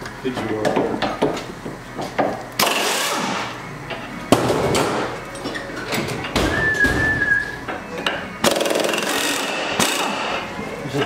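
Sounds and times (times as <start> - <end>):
impact wrench bursts: 2.6 - 3.5, 8.4 - 10.4.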